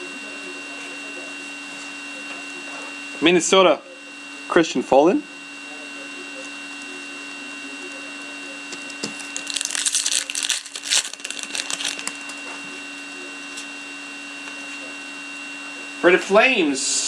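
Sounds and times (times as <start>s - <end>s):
foil pack tearing and crinkling: 8.9s - 12.4s.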